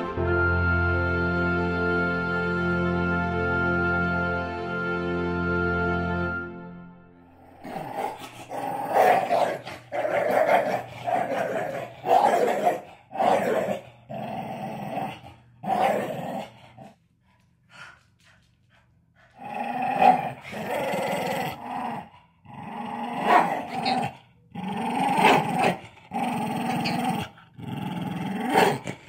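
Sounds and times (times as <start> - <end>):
dog play-growling: 7.4 - 29.0.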